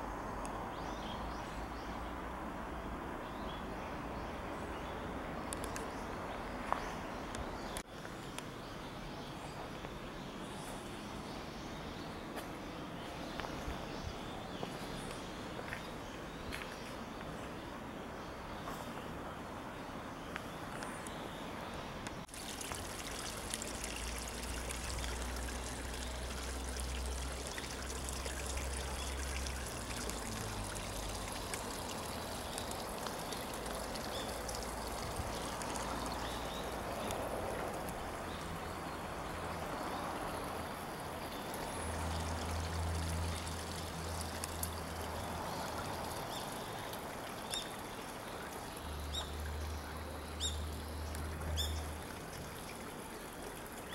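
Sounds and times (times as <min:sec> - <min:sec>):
water trickling: 0:22.3 - 0:53.9.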